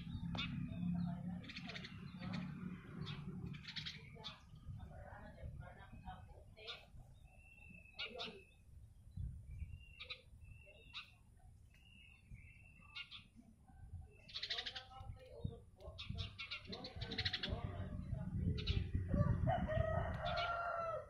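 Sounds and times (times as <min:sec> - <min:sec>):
small birds chirping: 0:00.0 - 0:19.2.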